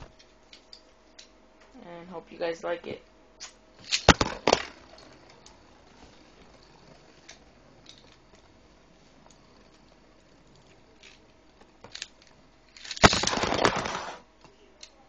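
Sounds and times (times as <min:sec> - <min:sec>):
spinning tops hissing: 0:03.4 - 0:14.3
spinning tops clacking: 0:03.8 - 0:05.8, 0:11.8 - 0:14.2.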